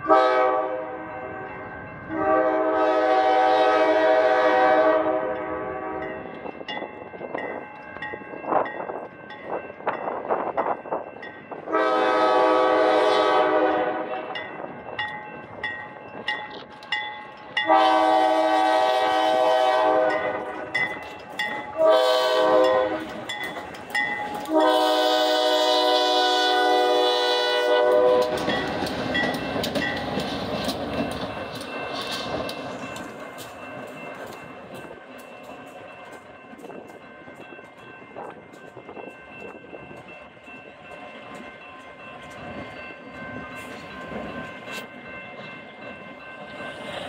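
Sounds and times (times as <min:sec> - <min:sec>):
locomotive air horn blasts: 0:00.0 - 0:01.1, 0:02.1 - 0:06.1, 0:11.7 - 0:14.2, 0:17.6 - 0:20.7, 0:21.7 - 0:23.2, 0:24.4 - 0:28.5
crossing signal bell ringing: 0:05.4 - 0:11.9, 0:14.2 - 0:18.8, 0:19.5 - 0:47.0
locomotives rumbling past: 0:11.6 - 0:47.0.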